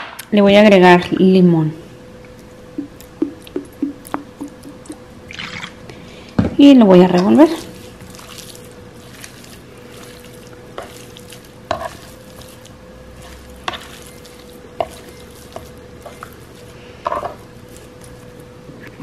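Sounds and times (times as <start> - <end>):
faint hum: 0.0 - 19.0
utensil stirring raw meat: 7.0 - 19.0.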